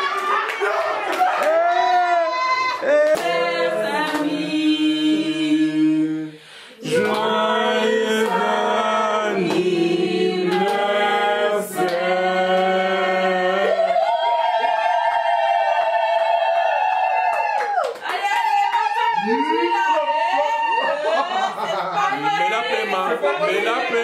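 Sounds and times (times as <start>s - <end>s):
voices singing a cappella: 2.2s - 16.5s, 20.7s - 24.0s.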